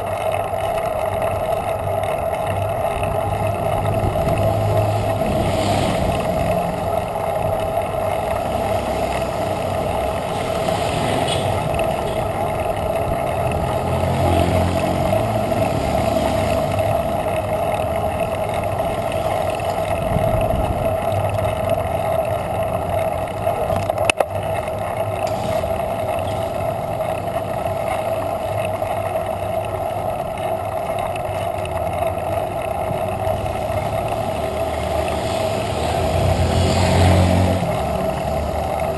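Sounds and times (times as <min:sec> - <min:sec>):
bicycle road noise: 0:00.0 - 0:38.9
wind noise on microphone: 0:02.9 - 0:15.9, 0:19.2 - 0:22.0.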